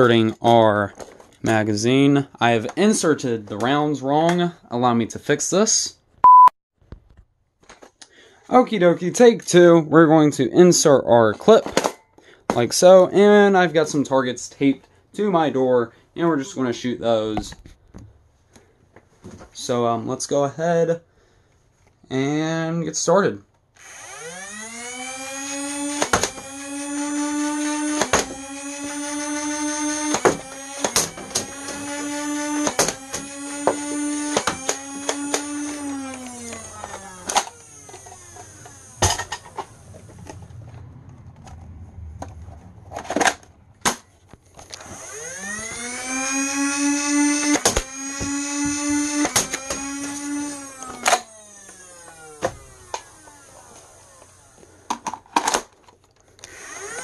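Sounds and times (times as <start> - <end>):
flywheel motors whining: 23.8 - 40.4, 44.7 - 55.0, 56.4 - 57.0.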